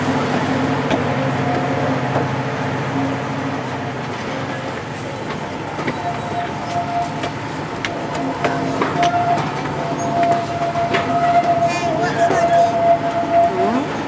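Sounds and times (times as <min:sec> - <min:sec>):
diesel locomotive engine running: 0:00.0 - 0:14.0
steady high-pitched squeal: 0:05.8 - 0:14.0.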